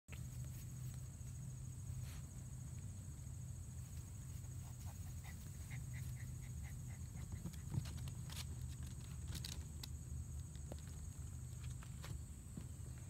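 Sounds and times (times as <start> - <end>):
puppy paws clicking on plastic: 6.8 - 12.2.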